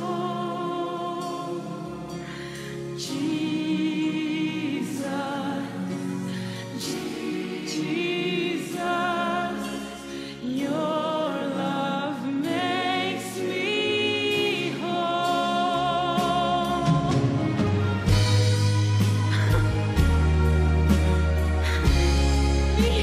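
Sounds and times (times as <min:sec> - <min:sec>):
woman singing gospel song: 0:00.0 - 0:02.3, 0:03.0 - 0:18.2, 0:22.7 - 0:23.0
musical accompaniment: 0:00.0 - 0:23.0.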